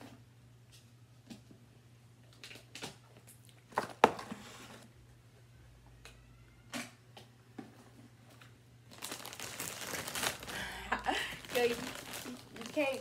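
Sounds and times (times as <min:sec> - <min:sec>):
low steady hum: 0:00.0 - 0:13.0
chip bags crackling: 0:08.9 - 0:13.0.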